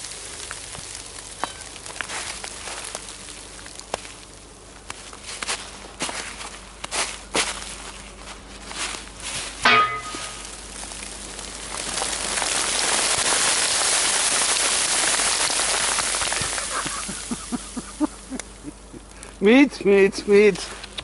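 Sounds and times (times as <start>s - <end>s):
ice crystals showering from branches: 0.0s - 4.4s, 10.2s - 18.4s.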